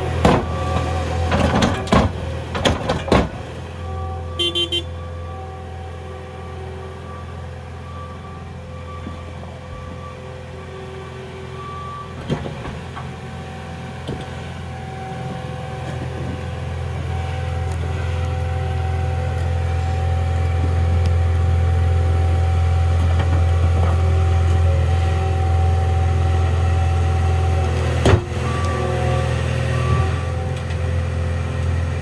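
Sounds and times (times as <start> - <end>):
diesel engine running under load: 0.0 - 32.0.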